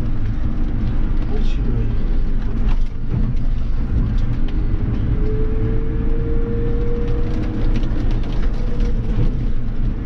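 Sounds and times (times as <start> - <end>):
tractor engine running: 0.0 - 5.3.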